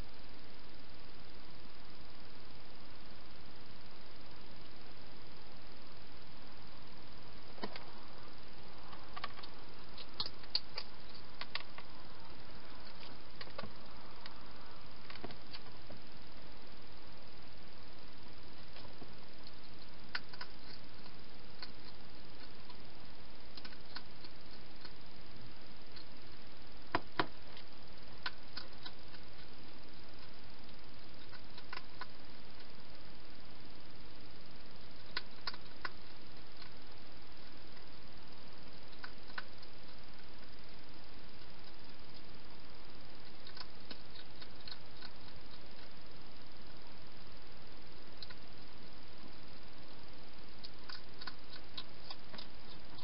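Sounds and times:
steady hiss: 0.0 - 53.0
hedgehog crunching food: 35.0 - 36.8, 43.2 - 46.0, 50.6 - 53.0.

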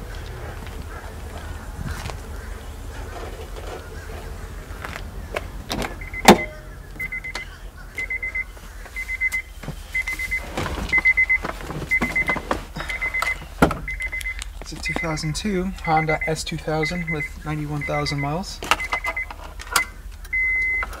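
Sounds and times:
car warning chime beeping: 5.6 - 21.0.

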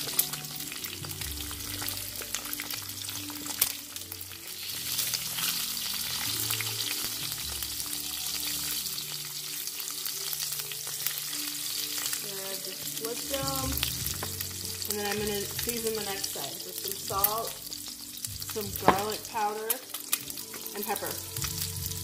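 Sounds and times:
food sizzling in oil: 0.0 - 22.0.

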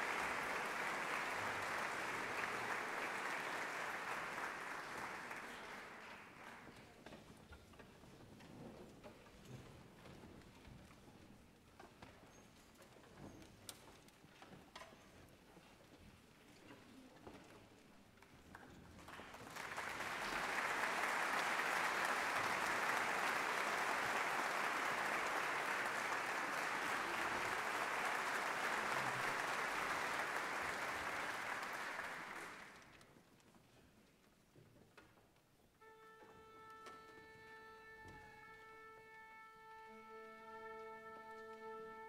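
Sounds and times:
audience applauding: 0.0 - 6.8, 19.0 - 32.9.

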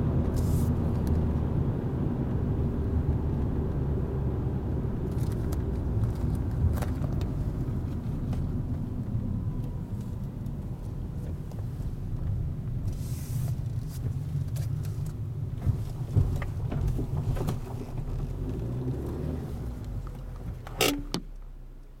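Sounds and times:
car engine and road rumble: 0.0 - 22.0
clicks and knocks over rough ground: 13.7 - 19.2.

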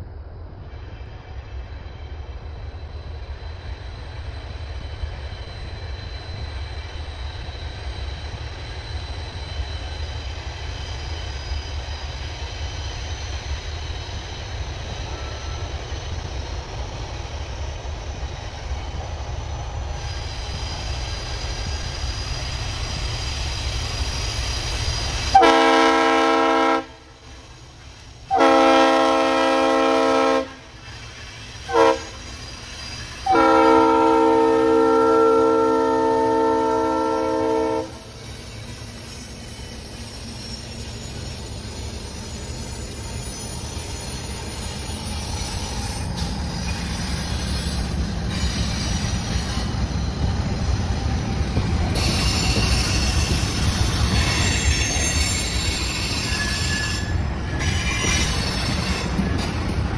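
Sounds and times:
freight train rumbling: 0.0 - 59.9
train air horn blasts: 25.3 - 27.1, 28.3 - 30.7, 31.6 - 32.2, 33.2 - 38.1.

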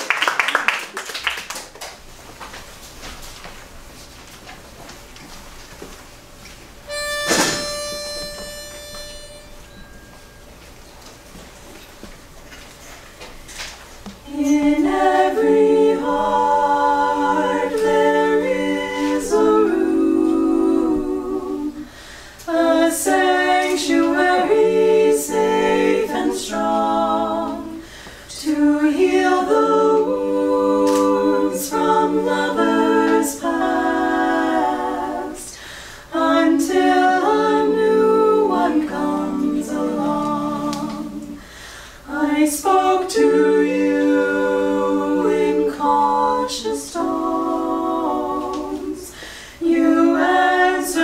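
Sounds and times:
a cappella quartet singing: 6.9 - 10.0, 14.1 - 51.0.

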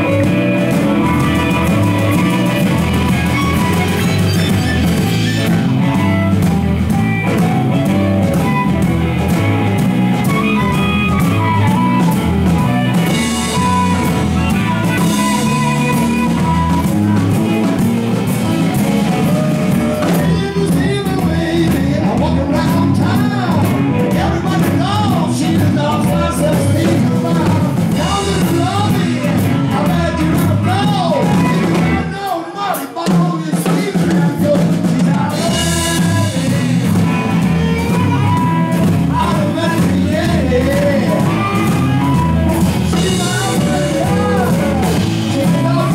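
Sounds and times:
amplified harmonica wailing: 0.0 - 21.6, 22.4 - 32.1, 35.3 - 45.9
blues band playing: 0.0 - 45.9.

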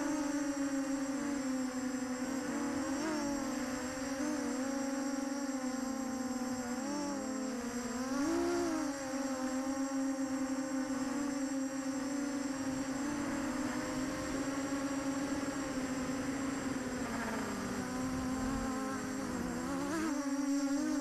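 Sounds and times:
quadcopter motors buzzing: 12.7 - 21.0.

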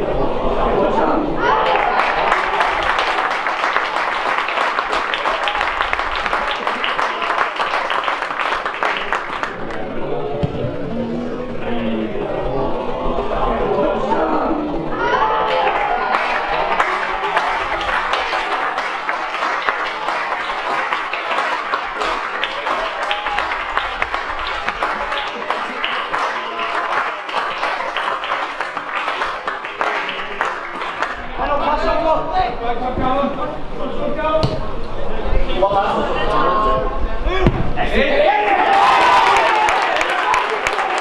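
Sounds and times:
crowd clapping and cheering: 1.4 - 10.2, 15.0 - 31.6, 38.3 - 41.0.

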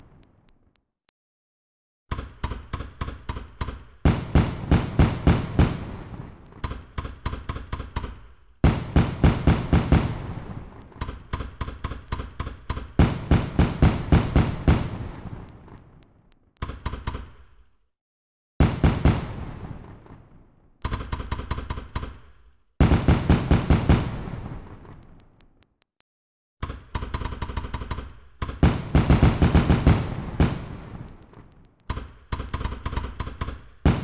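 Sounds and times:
fireworks bangs and crackles: 0.0 - 0.7, 3.9 - 7.9, 8.6 - 16.6, 18.6 - 20.8, 22.8 - 25.6, 28.4 - 34.0.

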